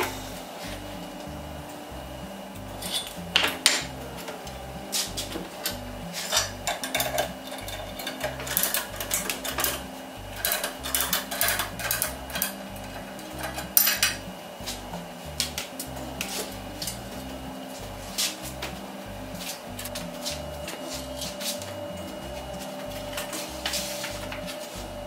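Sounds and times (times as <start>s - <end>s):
background music with bass line: 0.0s - 25.0s
metal clamps and chains clanking: 2.8s - 3.6s, 5.7s - 9.8s, 10.4s - 14.2s.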